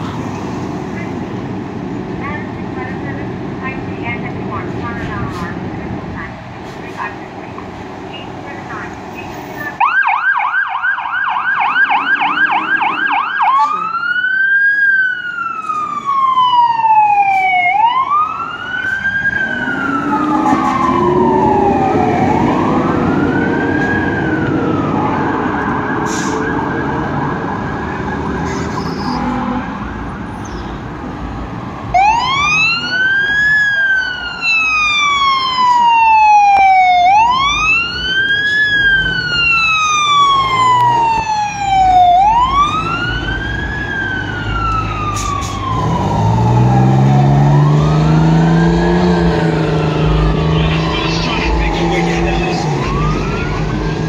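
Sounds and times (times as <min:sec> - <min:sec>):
fire truck siren: 0:09.4 - 0:30.4, 0:31.0 - 0:54.0
truck engine: 0:11.2 - 0:54.0.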